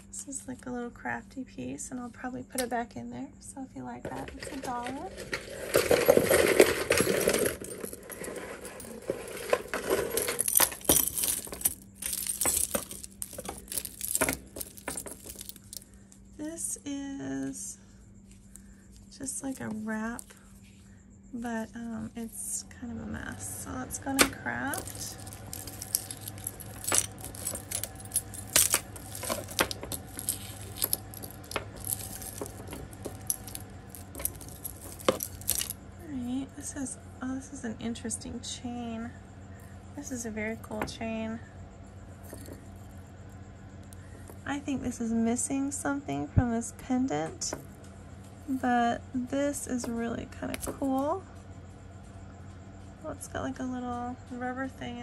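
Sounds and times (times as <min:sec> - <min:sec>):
jewelry clinking and jangling: 0:04.0 - 0:17.8, 0:18.5 - 0:20.6, 0:21.4 - 0:36.8, 0:42.1 - 0:42.9, 0:49.5 - 0:51.2.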